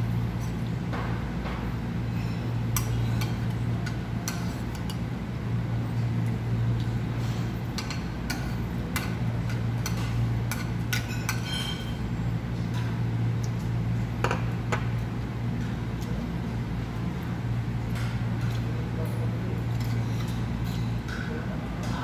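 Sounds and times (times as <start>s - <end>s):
steady low hum: 0.0s - 22.0s
cutlery scraping against plates: 7.2s - 12.0s, 19.7s - 21.2s.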